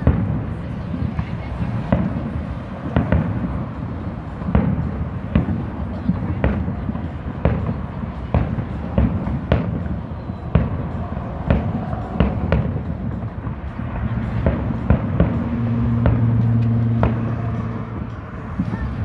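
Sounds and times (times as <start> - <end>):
fireworks crackling: 0.0 - 19.0.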